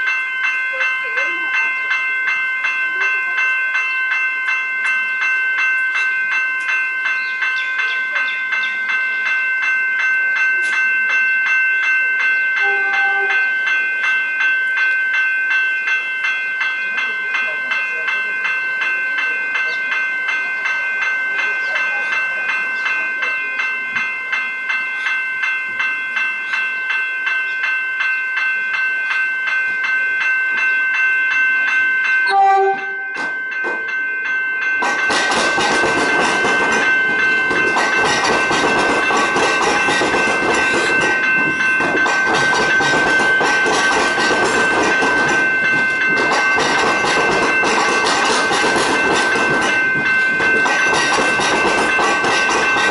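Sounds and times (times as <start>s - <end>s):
level crossing bells ringing: 0.0s - 52.9s
train horn blast: 12.6s - 13.5s, 32.3s - 33.2s
train wheels clacking on rails: 33.1s - 52.9s.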